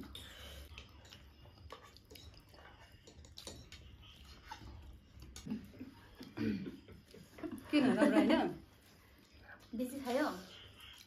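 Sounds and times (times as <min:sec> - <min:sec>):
faint chewing: 0:00.0 - 0:07.7, 0:08.7 - 0:11.0.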